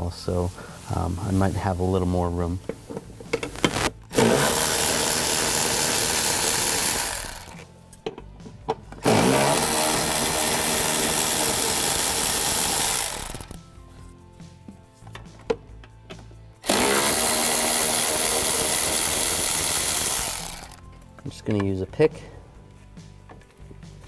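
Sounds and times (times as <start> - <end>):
electric ratchet spinning bolts: 3.3 - 7.6, 9.0 - 13.6, 16.6 - 20.8.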